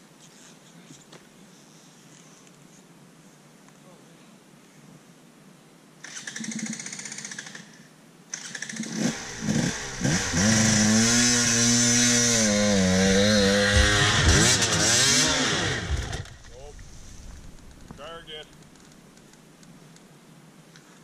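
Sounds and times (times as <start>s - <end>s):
dirt bike engine revving: 8.7s - 18.3s.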